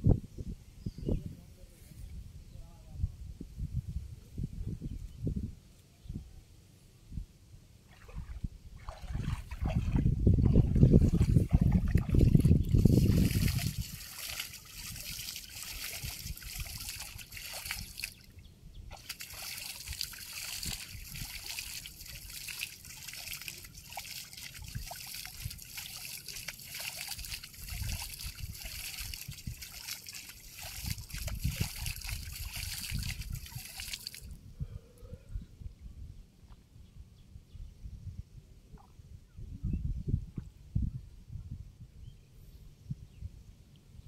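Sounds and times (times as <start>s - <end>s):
net splashing in water: 7.9s - 12.4s, 18.9s - 34.3s
shallow water sloshing and dripping: 7.9s - 34.4s.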